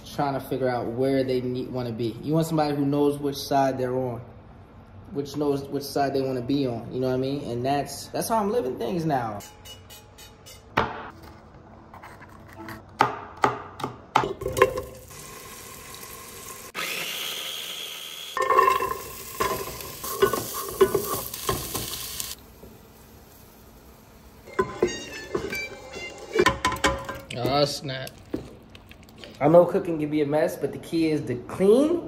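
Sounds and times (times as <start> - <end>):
food sizzling in a pan: 14.9 - 26.4
utensils clattering against pans: 18.4 - 22.0, 24.5 - 27.4.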